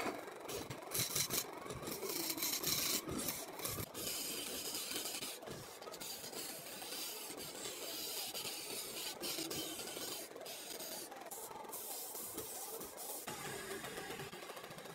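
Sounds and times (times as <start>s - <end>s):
chisel scraping wood on lathe: 0.6s - 11.2s.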